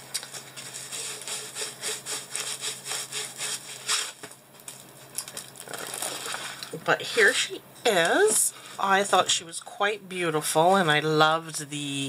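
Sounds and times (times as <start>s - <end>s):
plastic cover rustling: 0.0s - 6.8s.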